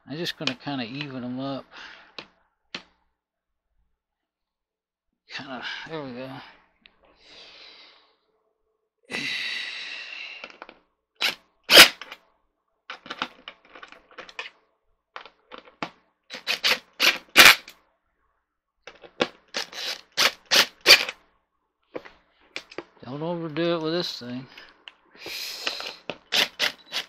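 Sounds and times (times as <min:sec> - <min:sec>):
cordless drill running: 0:16.3 - 0:17.7, 0:19.6 - 0:21.1, 0:25.7 - 0:27.0
drill clutch ratcheting clicks: 0:16.3 - 0:17.7, 0:19.6 - 0:21.1, 0:25.6 - 0:27.0.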